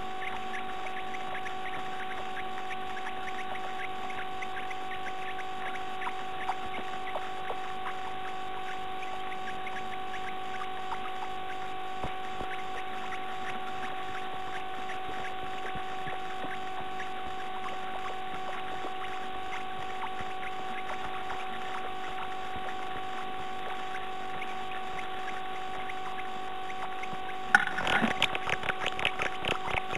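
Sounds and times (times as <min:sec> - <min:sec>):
electrical whine and hiss: 0:00.0 - 0:29.9
bird scratching in nest: 0:27.5 - 0:29.9.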